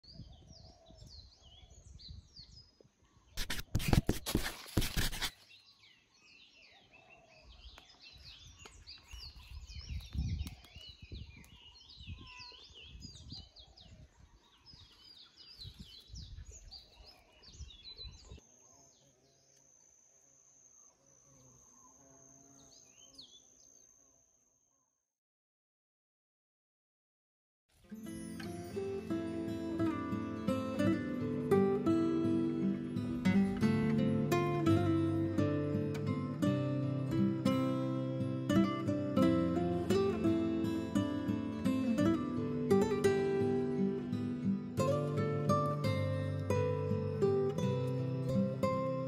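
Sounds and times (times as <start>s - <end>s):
birds chirping and whistling: 5.2s - 18.8s.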